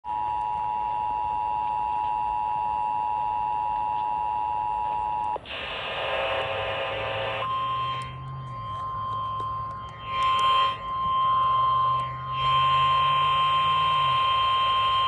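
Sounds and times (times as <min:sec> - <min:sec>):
static noise: 0:04.9 - 0:15.0
steady single tone: 0:06.4 - 0:15.0
two-tone alert signal: 0:07.4 - 0:15.0.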